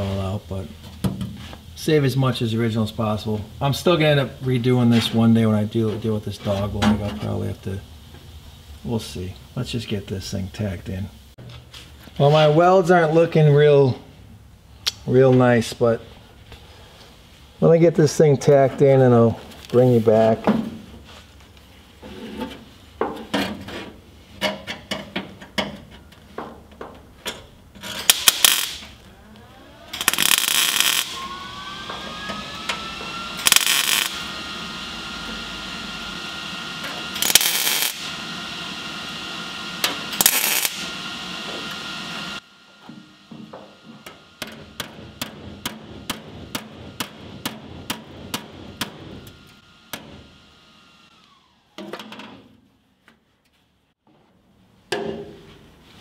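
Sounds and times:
welder crackling: 27.4s - 51.4s.

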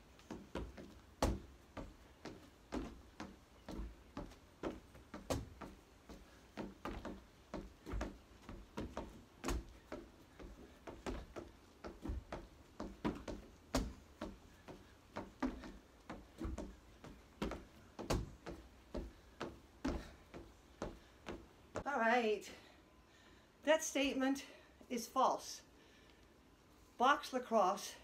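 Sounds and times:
light thuds of feet on wooden deck: 0.0s - 21.9s.

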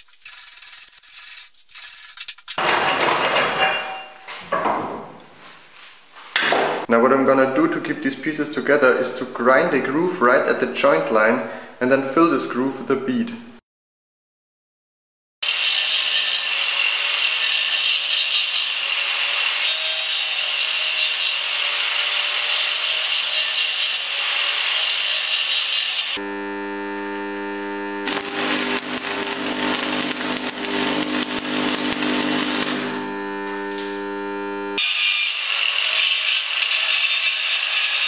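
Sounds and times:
angle grinder grinding steel: 0.0s - 2.7s, 15.4s - 38.0s
welding arc crackling: 17.1s - 37.4s
welder transformer hum: 25.2s - 37.2s.

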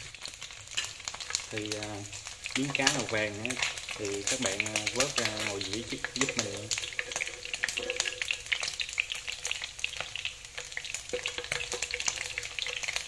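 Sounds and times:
fish frying in hot oil: 0.0s - 13.0s
spatula scraping pan: 6.1s - 9.2s.

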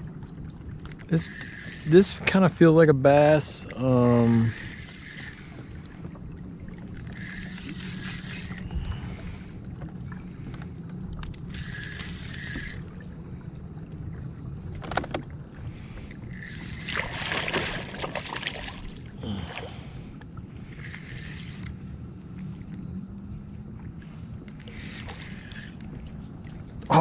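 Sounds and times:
steady low hum: 0.0s - 27.0s
fishing reel cranking: 0.9s - 5.8s, 6.9s - 9.0s, 11.2s - 13.0s, 16.1s - 17.8s, 20.2s - 21.8s, 24.5s - 26.0s.

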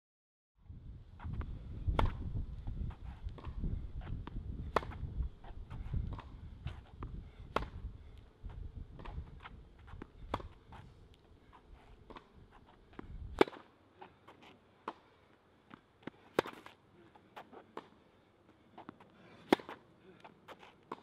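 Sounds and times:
tennis ball struck by racket: 1.9s - 2.3s, 2.9s - 7.8s, 9.0s - 10.8s, 12.0s - 13.7s, 16.0s - 16.8s, 18.8s - 19.8s.

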